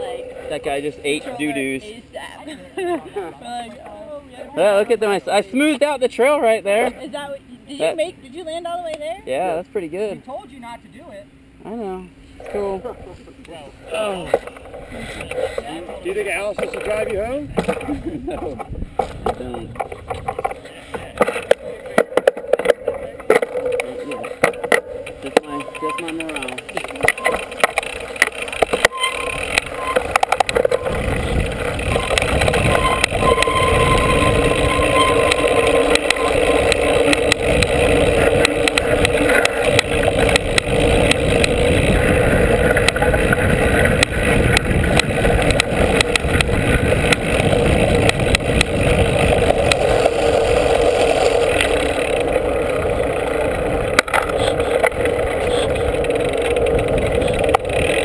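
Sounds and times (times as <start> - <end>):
bike clicks and rattles: 14.0 - 58.0
tyre rolling on dirt trail: 14.1 - 58.0
wind buffeting microphone: 16.9 - 20.5, 29.2 - 58.0.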